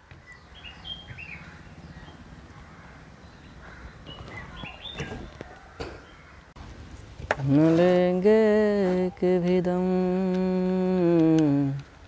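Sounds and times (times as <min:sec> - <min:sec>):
birds chirping: 0:00.0 - 0:06.6.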